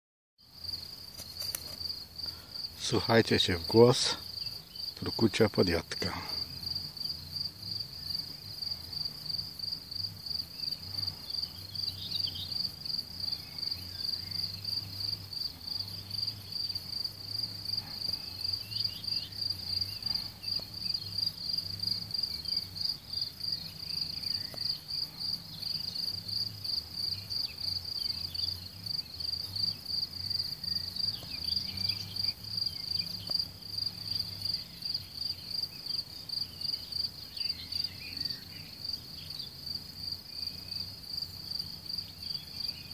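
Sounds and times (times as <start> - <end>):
crickets chirping: 0.4 - 42.9.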